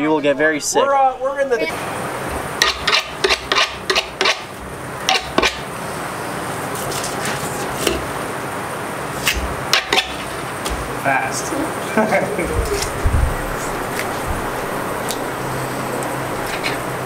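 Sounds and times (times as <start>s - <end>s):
knife scraping fish: 2.6s - 4.5s, 5.1s - 5.6s.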